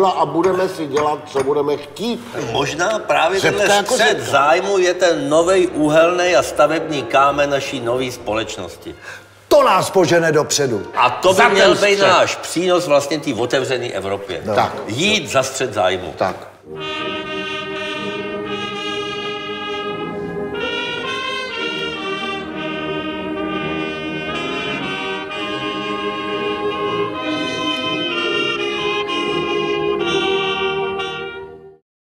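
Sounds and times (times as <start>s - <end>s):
music of slow held chords: 16.7s - 31.8s.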